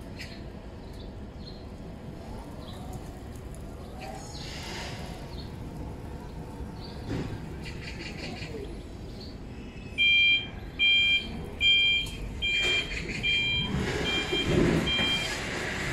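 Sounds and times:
two-tone electronic warning beep: 0:10.0 - 0:15.4.

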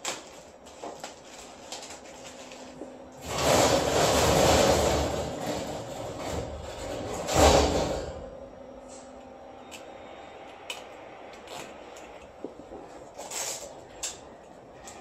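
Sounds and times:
steady room hum: 0:00.0 - 0:15.0.

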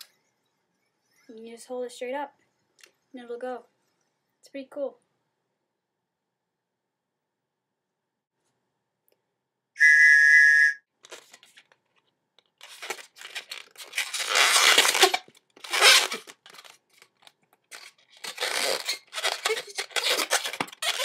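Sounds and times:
whistle-like squeal: 0:09.8 - 0:10.9
balloon squeaking while twisted: 0:12.6 - 0:16.7, 0:17.7 - 0:21.0.

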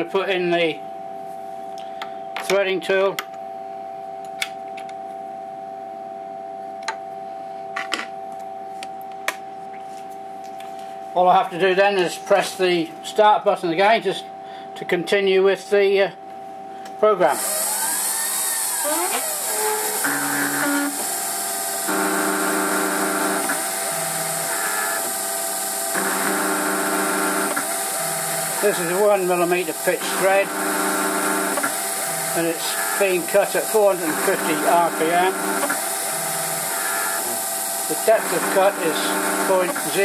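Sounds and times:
lathe steady hum: 0:17.2 - 0:40.0
stepper motors whining: 0:17.3 - 0:40.0.

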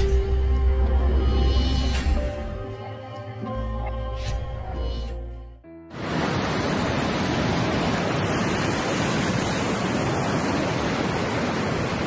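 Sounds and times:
storm waves surging: 0:05.9 - 0:12.0.

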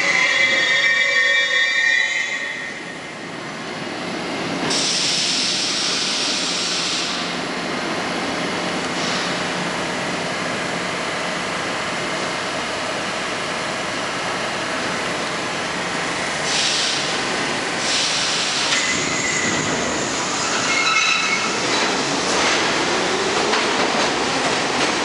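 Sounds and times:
subway train rumbling: 0:00.0 - 0:25.0
air hissing: 0:04.7 - 0:07.3, 0:16.4 - 0:17.1, 0:17.8 - 0:20.4
wheels squealing: 0:20.4 - 0:21.8.

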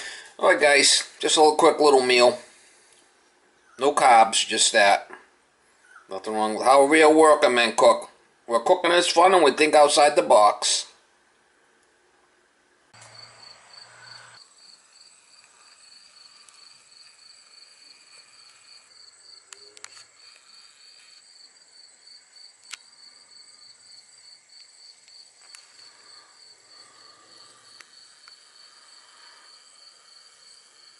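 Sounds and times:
insect trill: 0:13.0 - 0:30.9.

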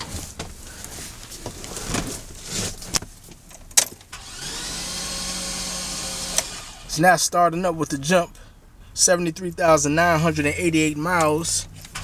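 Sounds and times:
starter motor cranking: 0:04.1 - 0:06.9.

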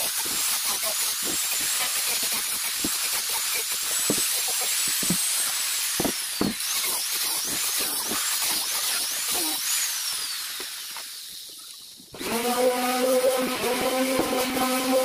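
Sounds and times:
sander on wood: 0:00.0 - 0:15.0
knocks: 0:06.0 - 0:06.6.

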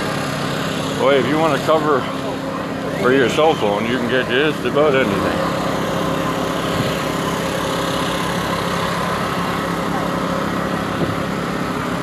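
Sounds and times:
small engine humming: 0:00.0 - 0:12.0
people chattering: 0:09.0 - 0:11.0.

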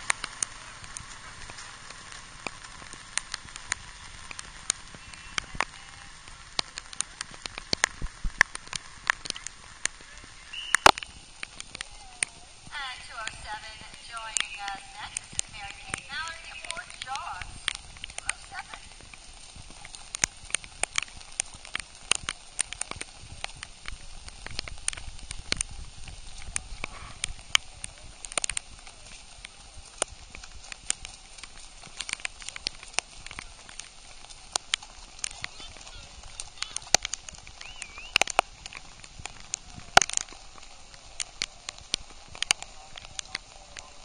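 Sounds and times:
faint rain hiss: 0:00.0 - 0:44.0
raindrops ticking on microphone: 0:00.0 - 0:44.0
short warbling whistle: 0:10.5 - 0:10.9, 0:37.6 - 0:38.2.

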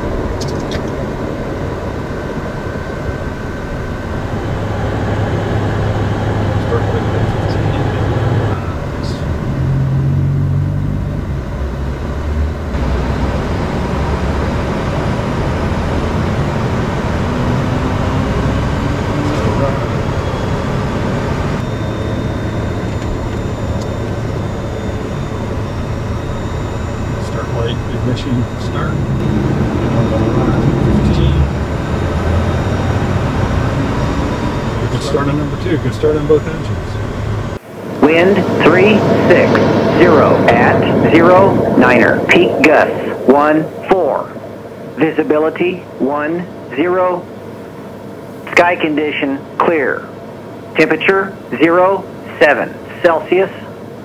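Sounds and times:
jet engine rushing noise: 0:00.0 - 0:54.0
low hum: 0:00.0 - 0:54.0
thin high tone: 0:21.5 - 0:32.7.

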